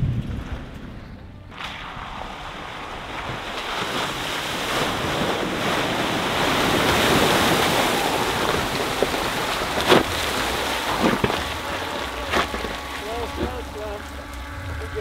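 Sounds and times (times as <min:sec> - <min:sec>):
water splashing and rushing: 0:00.0 - 0:15.0
tyres knocking over rocks: 0:06.8 - 0:14.1.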